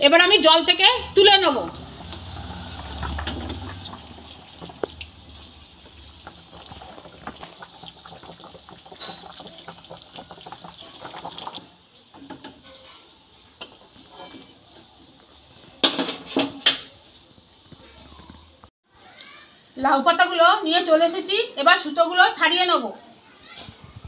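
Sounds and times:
water boiling: 0.1 - 17.8
ladle sloshing and scraping: 1.7 - 11.7.

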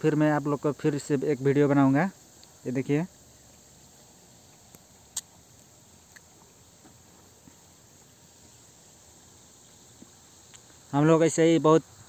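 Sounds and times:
high-pitched outdoor hiss: 0.0 - 12.0
faint ticks: 2.3 - 2.6, 4.4 - 8.1, 9.6 - 10.9.

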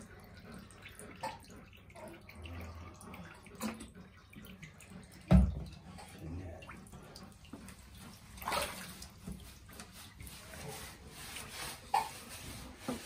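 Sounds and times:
bath water sloshing and dripping: 0.0 - 13.0
water splash: 8.4 - 9.5.

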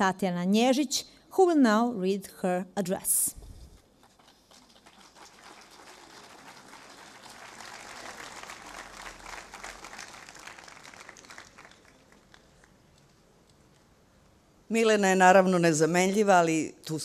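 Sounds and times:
audience applauding: 4.0 - 12.9.

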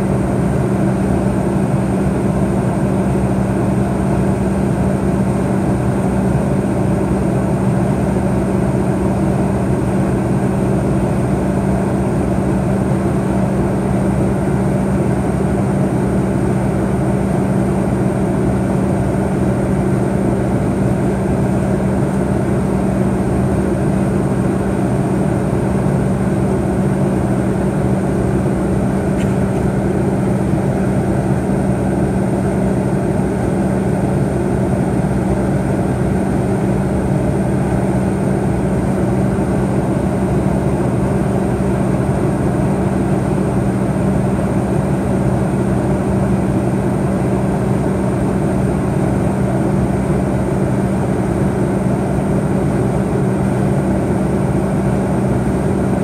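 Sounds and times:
jet engines low hum: 0.0 - 56.0.

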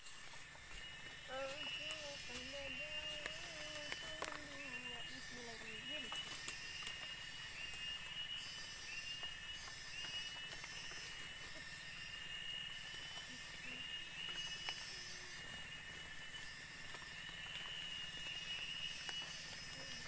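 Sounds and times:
high insect drone: 0.0 - 20.0
faint twig clicks: 1.3 - 8.2.

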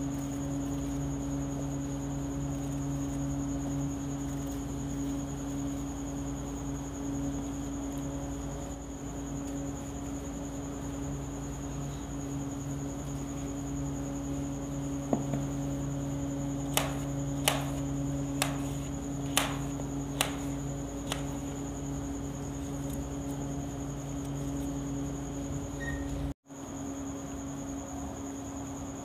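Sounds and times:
electrical hum with high whine: 0.0 - 29.0
knife chopping cucumber: 16.7 - 21.4.

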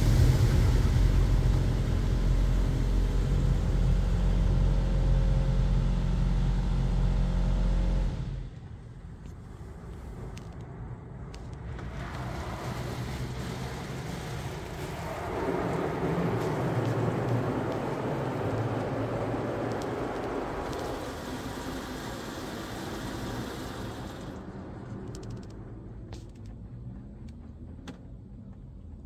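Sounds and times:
rushing water noise: 0.0 - 3.9, 11.8 - 24.8
car wash spraying water: 0.0 - 10.4, 11.3 - 26.4.

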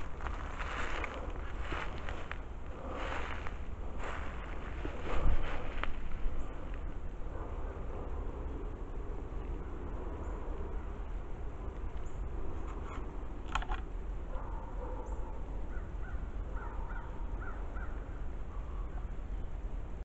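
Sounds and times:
steady low rumble: 0.0 - 20.0
bird calling: 14.9 - 19.2.

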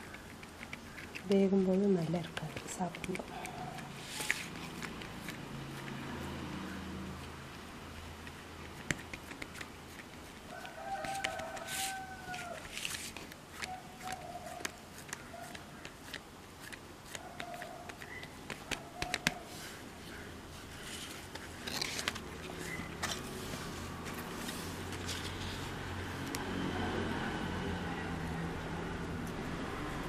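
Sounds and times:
fingers pressing dough on a leaf: 0.0 - 6.5, 7.1 - 23.0
rooster crowing: 10.5 - 12.9.

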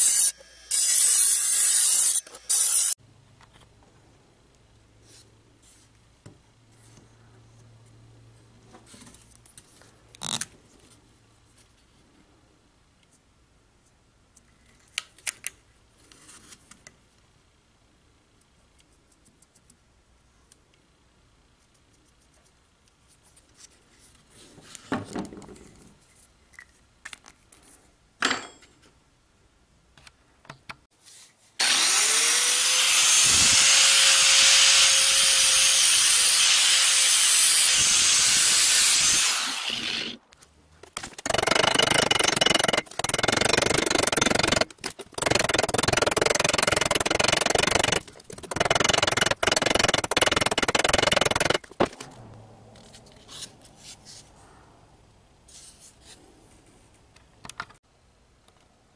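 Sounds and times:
saw blade whining: 0.0 - 3.0, 31.6 - 40.2, 41.1 - 51.7.

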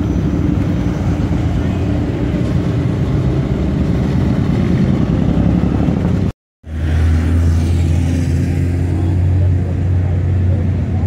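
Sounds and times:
deep engine drone: 0.0 - 11.0.

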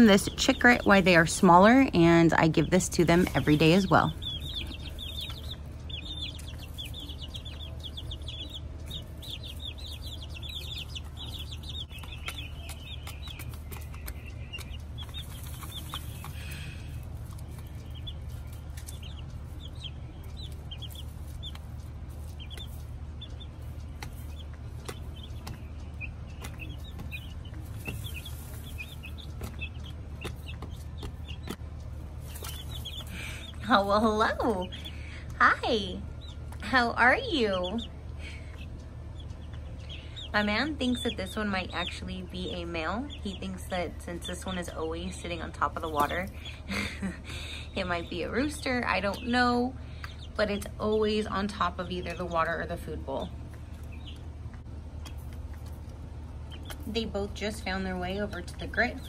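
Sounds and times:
chicks peeping: 0.0 - 59.0
steady low hum: 0.0 - 59.0.

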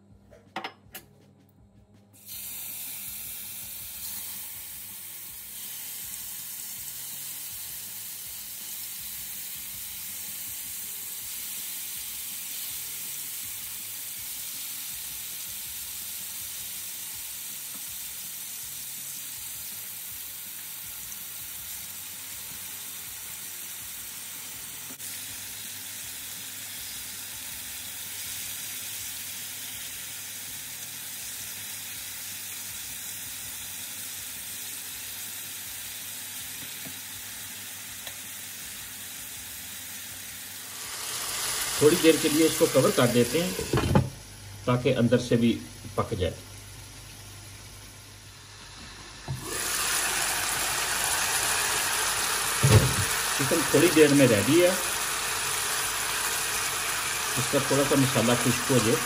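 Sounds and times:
chicken sizzling in hot oil: 2.2 - 59.0.

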